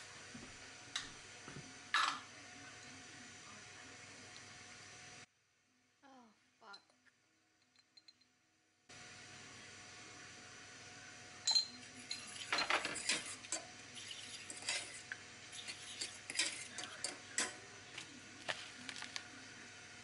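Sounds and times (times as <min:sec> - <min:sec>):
metal fork scraping a pot: 0:12.0 - 0:17.5.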